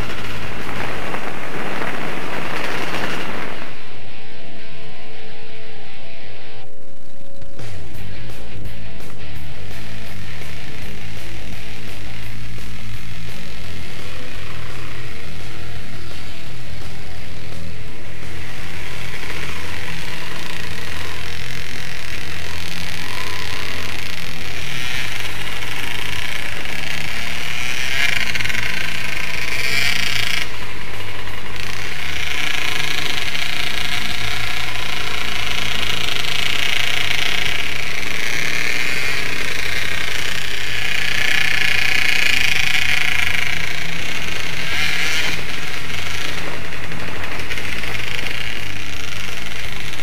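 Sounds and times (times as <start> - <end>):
motorcycle engine revving: 0.0 - 50.0.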